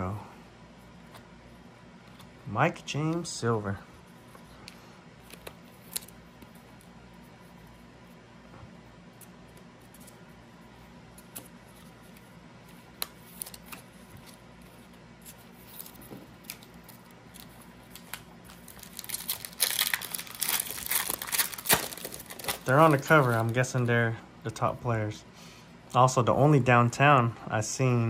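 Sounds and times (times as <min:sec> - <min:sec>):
foil wrapper tearing and crinkling: 0:15.6 - 0:23.7.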